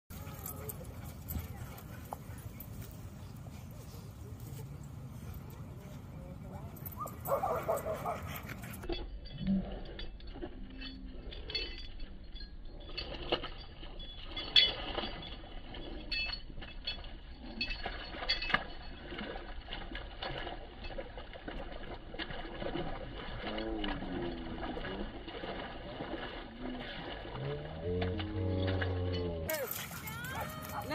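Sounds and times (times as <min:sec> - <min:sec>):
scattered clinks: 0:00.1 - 0:06.0, 0:06.6 - 0:30.9
dog splashing in puddle: 0:12.8 - 0:30.9.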